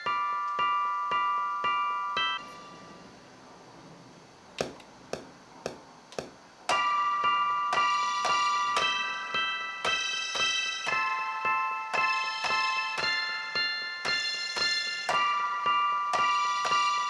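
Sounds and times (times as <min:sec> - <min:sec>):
electric piano chords: 0:00.0 - 0:03.2, 0:06.7 - 0:17.0
metronome clicks: 0:14.0 - 0:16.9.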